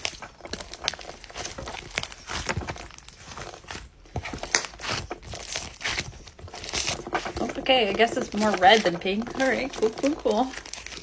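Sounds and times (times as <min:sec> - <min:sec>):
slime sticky clicks and crackles: 0:00.0 - 0:07.4.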